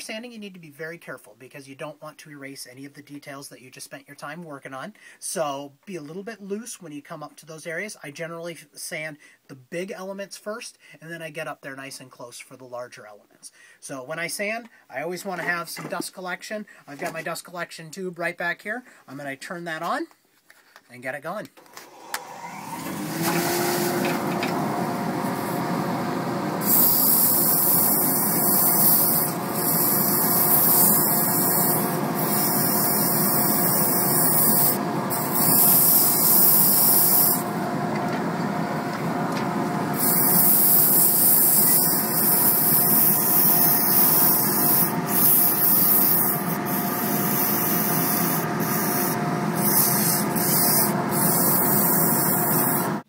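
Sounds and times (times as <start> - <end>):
dust collector humming: 22.2 - 53.0
sandpaper rasping on spinning wood: 26.6 - 37.5, 40.0 - 53.0.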